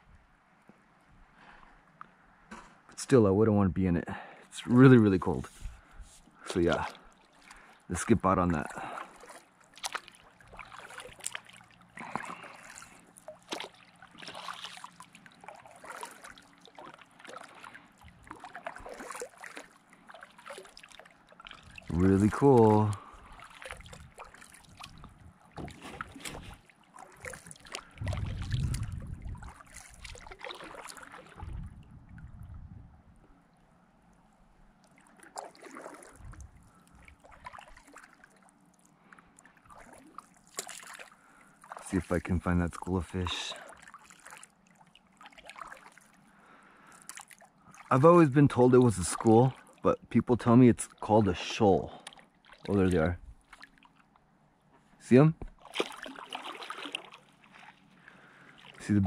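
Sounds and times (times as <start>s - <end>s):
paddle strokes splashing water: 5.2s - 31.8s, 34.4s - 54.8s, 55.4s - 59.0s
water trickling off paddle: 5.2s - 32.2s, 33.4s - 54.4s, 55.4s - 59.0s
water dripping: 8.5s - 25.2s, 27.0s - 31.2s.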